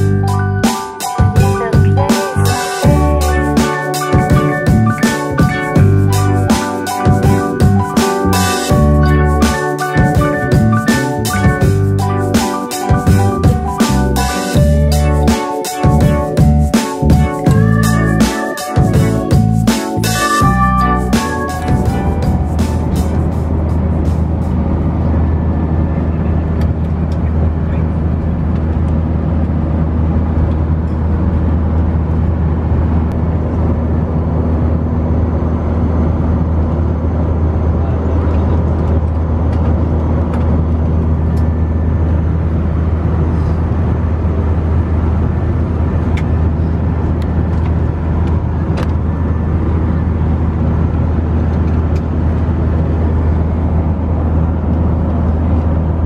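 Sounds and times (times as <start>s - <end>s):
aircraft cabin engine drone: 0.0s - 56.0s.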